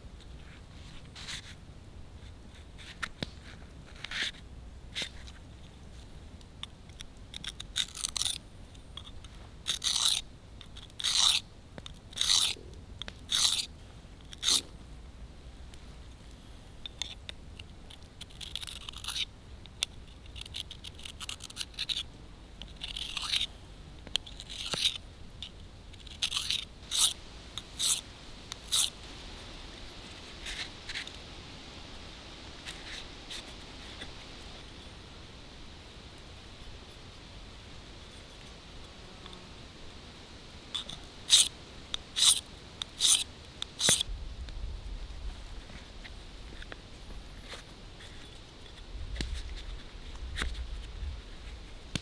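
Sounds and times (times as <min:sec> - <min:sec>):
knife scraping on sharpener: 0:07.4 - 0:08.4, 0:09.0 - 0:10.2, 0:10.8 - 0:11.4, 0:12.1 - 0:12.6, 0:13.3 - 0:13.7, 0:14.3 - 0:14.7, 0:18.2 - 0:19.3, 0:20.3 - 0:22.0, 0:22.8 - 0:23.5, 0:24.3 - 0:25.0, 0:26.0 - 0:27.2, 0:27.8 - 0:28.0, 0:28.6 - 0:28.9, 0:40.8 - 0:41.5, 0:42.2 - 0:42.4, 0:43.0 - 0:43.2, 0:43.8 - 0:44.0.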